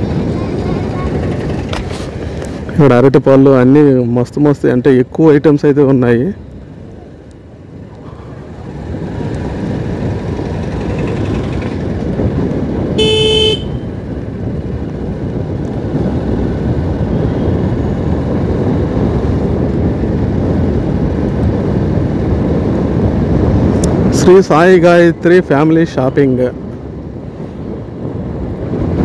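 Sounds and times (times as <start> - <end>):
road and wind noise: 0.0 - 29.0
motorcycle engine running: 8.3 - 14.4
vehicle horn toot: 13.0 - 13.9.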